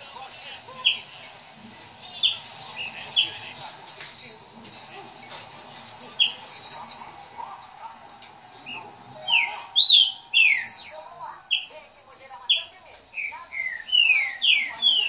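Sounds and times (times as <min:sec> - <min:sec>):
faint bird chirps: 0:07.8 - 0:15.0
bird whistling downward notes: 0:08.6 - 0:11.8.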